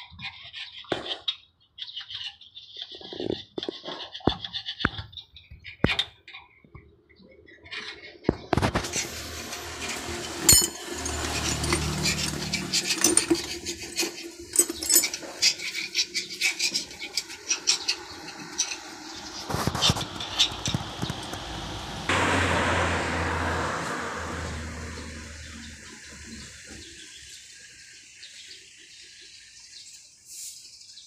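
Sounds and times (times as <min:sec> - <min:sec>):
low hum: 0:08.8 - 0:13.3, 0:19.1 - 0:25.8
tools clinking on metal: 0:08.9 - 0:16.7.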